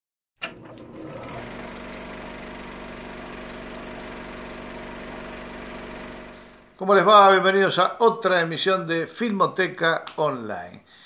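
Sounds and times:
film projector whirring: 0.4s - 6.8s.

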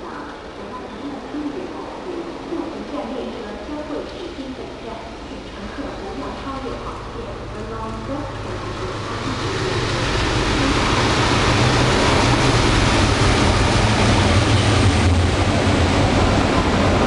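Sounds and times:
diesel locomotive engine drone: 0.0s - 17.0s
train rushing rumble: 4.6s - 17.0s.

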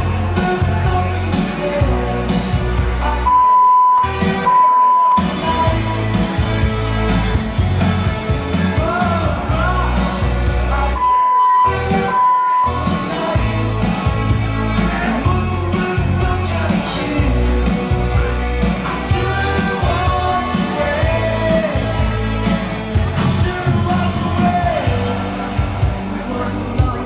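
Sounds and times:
rock song over sound system: 0.0s - 27.0s
censor bleeps: 3.3s - 5.2s, 11.0s - 12.9s.

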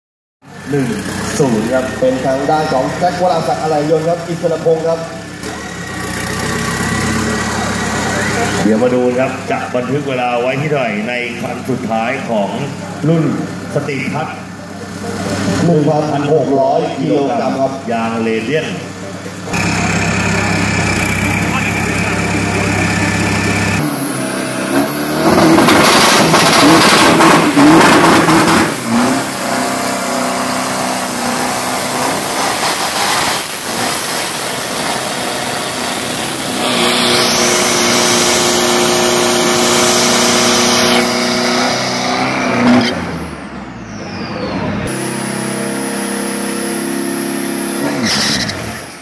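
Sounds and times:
truck engine revving: 0.4s - 49.0s
tyres spinning on track: 0.5s - 10.2s, 18.8s - 46.4s.

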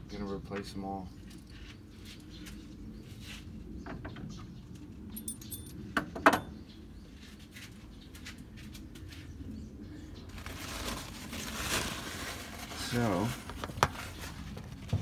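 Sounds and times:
rustle: 10.3s - 14.9s.

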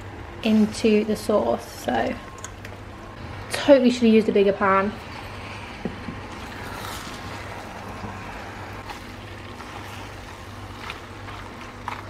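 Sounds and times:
steady low hum: 0.0s - 12.0s
pasta stirred in creamy sauce: 6.4s - 12.0s.

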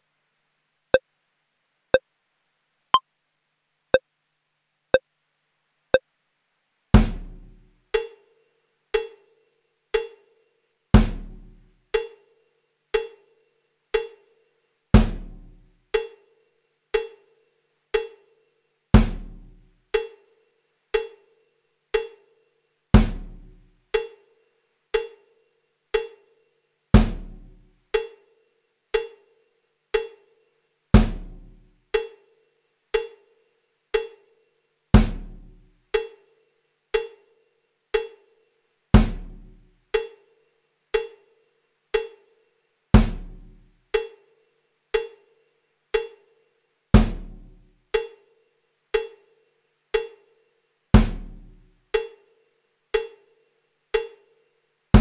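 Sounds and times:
heavy bass drum hits: 47.0s - 47.4s.

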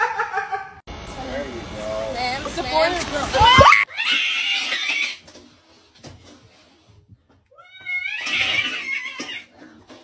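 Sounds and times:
cat yowling: 7.6s - 9.5s.

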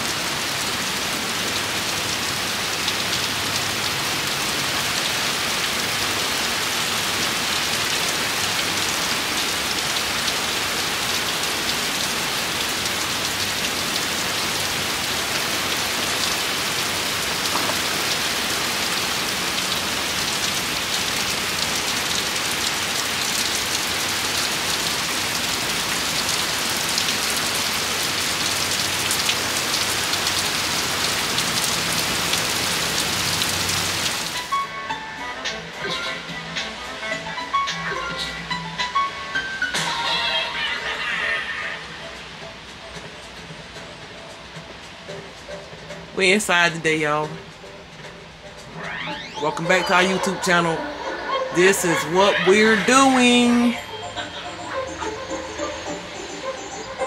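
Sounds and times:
heavy rain on pavement: 0.0s - 34.7s, 39.6s - 46.5s.

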